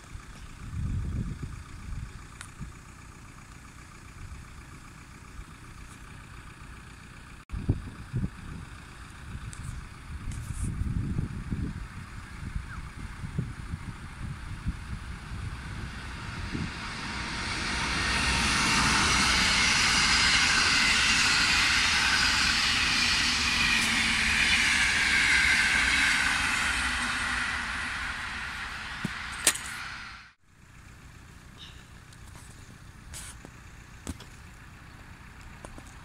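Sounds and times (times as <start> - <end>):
train wheels rushing on rail: 13.1 - 30.4.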